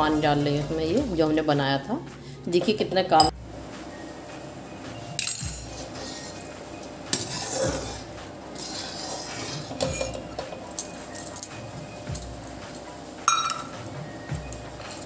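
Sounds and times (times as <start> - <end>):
metal spoon scraping a pan: 5.6 - 6.5, 7.1 - 11.6.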